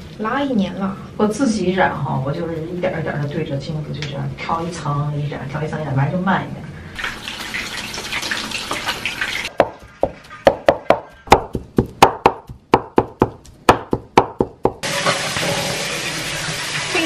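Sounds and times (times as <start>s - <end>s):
cleaver chopping on wooden board: 9.6s - 14.8s.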